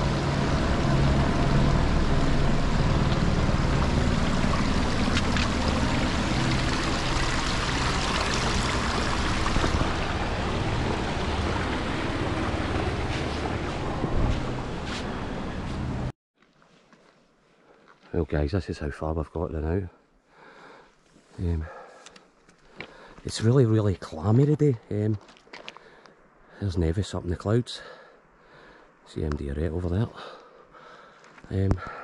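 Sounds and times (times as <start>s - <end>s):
mountain stream rushing: 0.0s - 16.1s
uneven low rumble: 0.0s - 16.1s.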